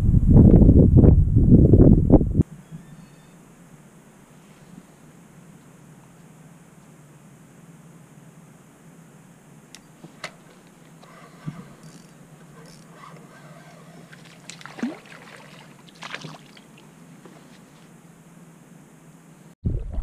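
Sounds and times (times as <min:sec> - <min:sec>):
fish splashing at the surface: 0:14.1 - 0:16.8.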